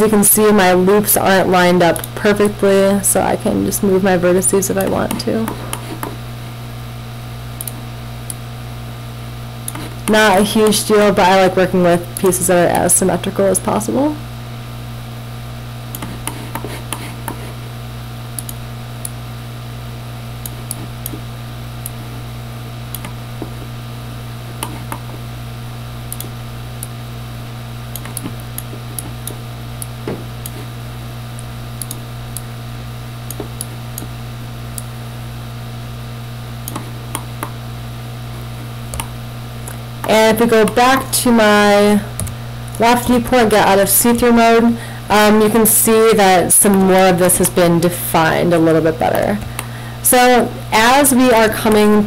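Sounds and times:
low electrical hum: 0.0 - 52.0
computer mouse clicks: 7.6 - 8.4, 15.9 - 17.4, 18.4 - 19.2, 22.9 - 23.7, 24.6 - 25.1, 26.1 - 26.9, 27.9 - 30.7, 31.4 - 32.5, 36.6 - 37.6.

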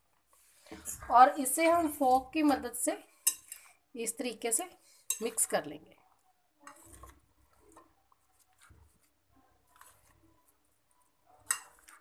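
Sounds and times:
fork scraping plate: 6.7 - 7.2
fork squishing raw meat: 6.7 - 12.0.

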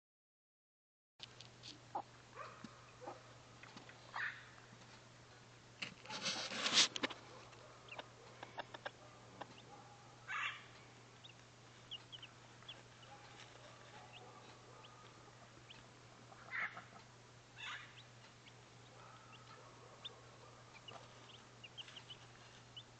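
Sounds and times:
hen clucking: 6.1 - 22.9
chicks peeping: 6.2 - 9.7, 10.3 - 22.9.

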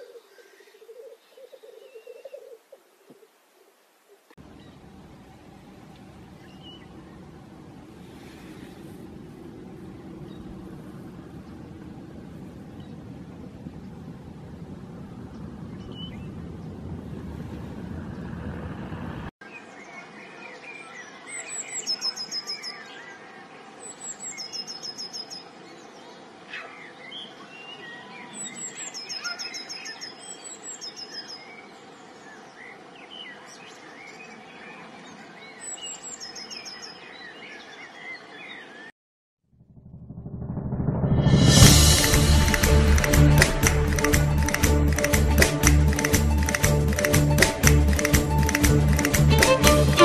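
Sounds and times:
songbird singing repeated notes: 0.0 - 3.3, 6.3 - 7.2
low rumbling noise: 4.4 - 19.3, 39.5 - 50.0.

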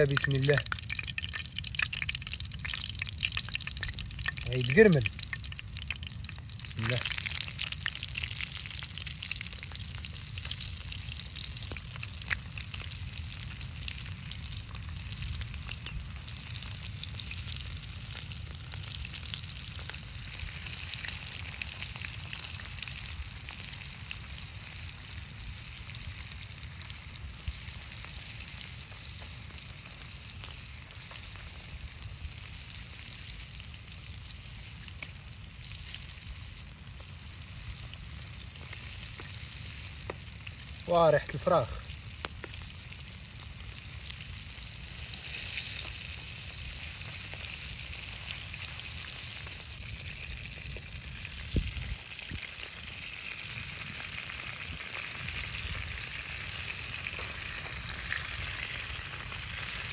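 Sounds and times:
meat sizzling in hot oil: 0.0 - 59.9.

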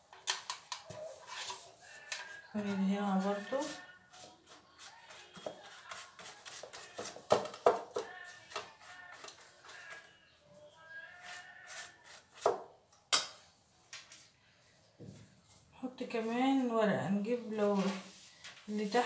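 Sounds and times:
pastry brush brushing dough: 1.0 - 7.2, 11.0 - 12.5.

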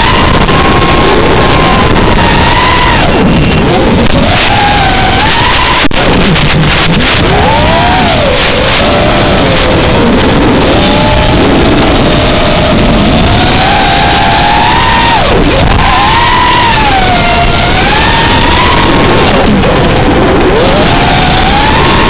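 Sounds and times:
drone motors whining: 0.0 - 22.0.

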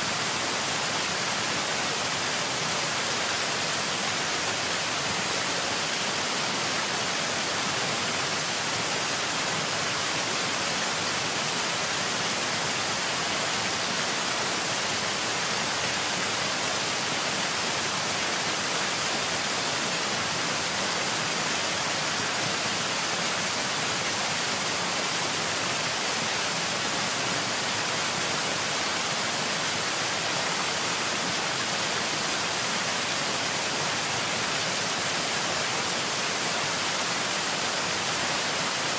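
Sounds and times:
steady hiss-like rushing noise: 0.0 - 38.9.

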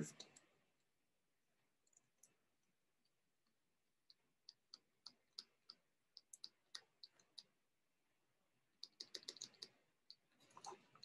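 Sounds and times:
stylus tapping on tablet: 8.8 - 10.2.

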